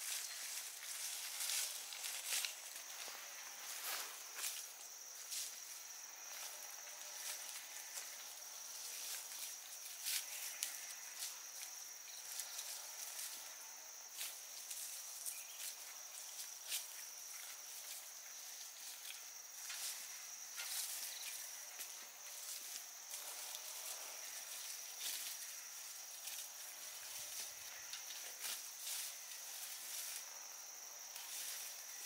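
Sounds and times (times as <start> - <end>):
plants crackling as picked: 0.0 - 4.6
high-pitched insect trill: 0.0 - 32.0.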